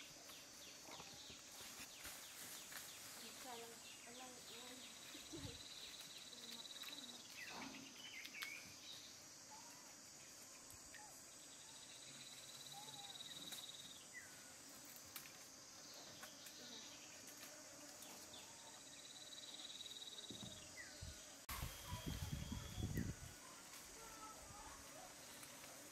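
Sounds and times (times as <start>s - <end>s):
insect trilling: 4.9s - 25.6s.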